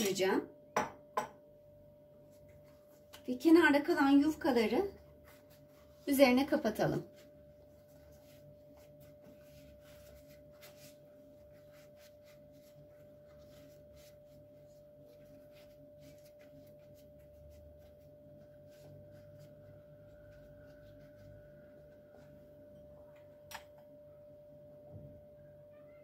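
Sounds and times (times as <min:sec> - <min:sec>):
pastry sheets rustling: 0:02.2 - 0:23.0.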